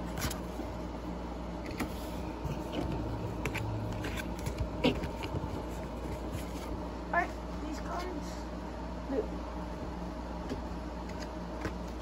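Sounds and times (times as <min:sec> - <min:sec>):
trading cards rustling and flicking: 0:00.0 - 0:00.8, 0:01.6 - 0:06.9, 0:10.5 - 0:12.0.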